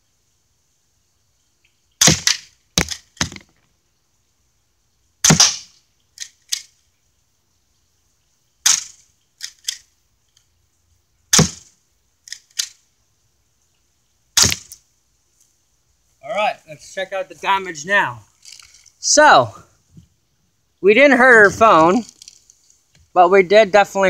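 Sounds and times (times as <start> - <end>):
airsoft gun cracks: 2.0 - 3.4, 5.2 - 6.7, 8.6 - 9.9, 12.3 - 12.8, 14.4 - 14.8.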